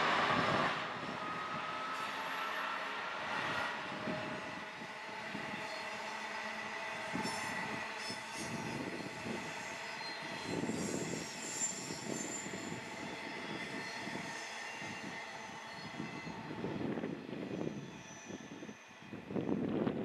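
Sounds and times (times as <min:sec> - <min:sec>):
distant diesel engine drone: 0:00.0 - 0:09.6
train wheels squealing: 0:00.0 - 0:20.0.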